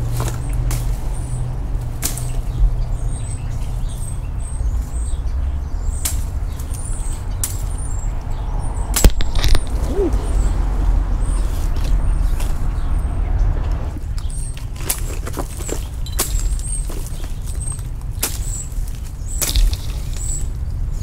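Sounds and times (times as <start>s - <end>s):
low rumble on microphone: 0.0s - 14.5s
sharp clicks and knocks: 9.0s - 9.8s.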